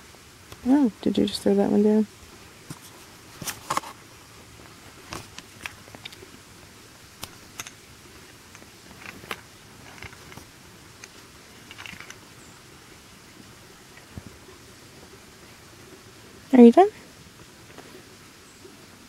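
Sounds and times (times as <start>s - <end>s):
small animal chewing: 7.2s - 12.3s.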